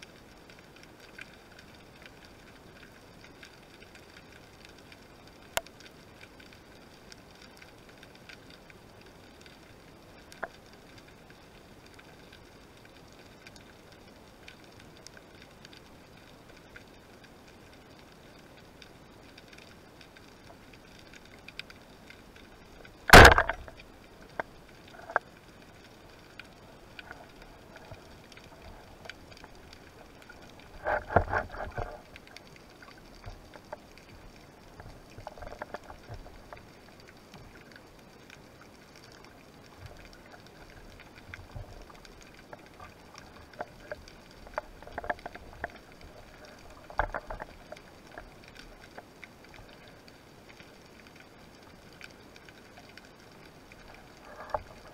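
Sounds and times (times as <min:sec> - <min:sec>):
faint clicks and knocks: 0:00.0 - 0:54.9
speargun firing crack underwater: 0:23.1 - 0:23.8.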